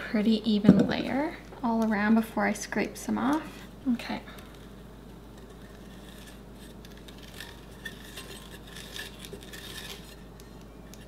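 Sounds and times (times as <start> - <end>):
icing scraper scraping: 5.4 - 10.4.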